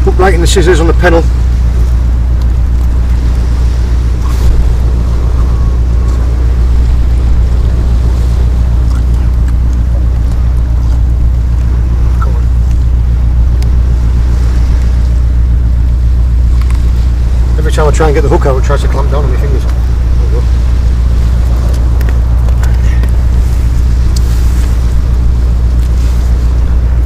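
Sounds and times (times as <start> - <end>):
loud low drone: 0.0 - 27.0
faint small clicks: 16.6 - 16.8.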